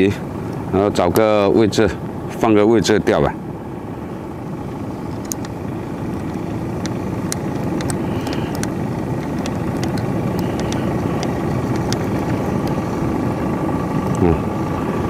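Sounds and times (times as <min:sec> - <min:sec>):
boat engine droning: 0:00.0 - 0:15.0
light clicks: 0:05.2 - 0:12.8.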